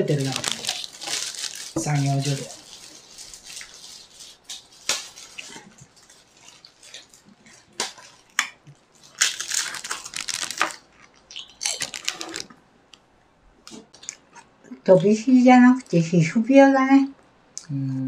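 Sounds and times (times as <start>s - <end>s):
plastic wrapper crinkling: 0.0s - 13.0s
cracker crunching: 0.0s - 14.5s.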